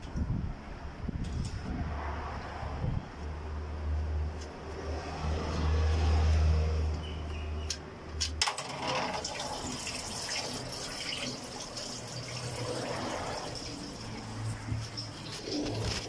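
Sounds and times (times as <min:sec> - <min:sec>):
oil pouring into a pan: 0:08.9 - 0:14.0.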